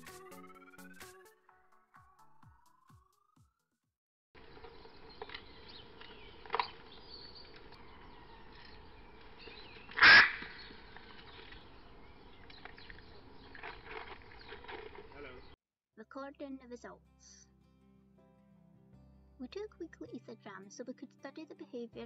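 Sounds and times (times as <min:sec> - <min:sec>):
macaw squawking: 0:06.1 - 0:11.5.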